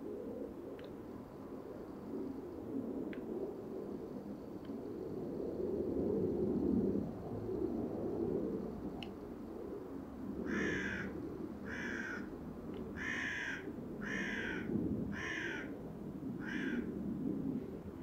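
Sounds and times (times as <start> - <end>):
bird calling: 16.4 - 16.9.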